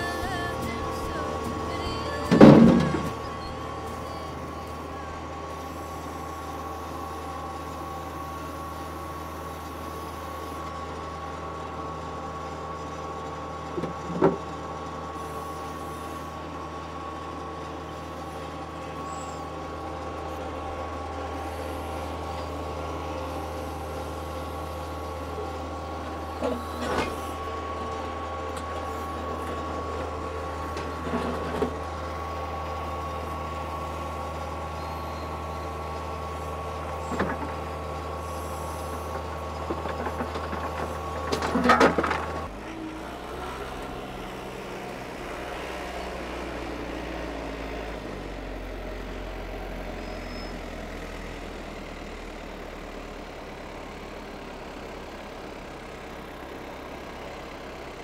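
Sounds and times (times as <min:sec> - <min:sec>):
hydraulic whine: 0:00.0 - 0:51.4
tractor diesel engine: 0:00.0 - 0:58.0
backhoe bucket clunking on rocks: 0:01.3 - 0:03.4, 0:39.6 - 0:42.5.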